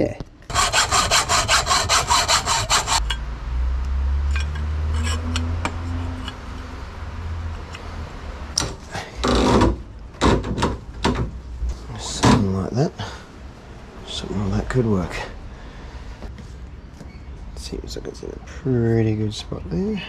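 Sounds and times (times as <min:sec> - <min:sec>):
hacksaw cutting metal tubing: 0:00.5 - 0:03.2, 0:04.4 - 0:06.4.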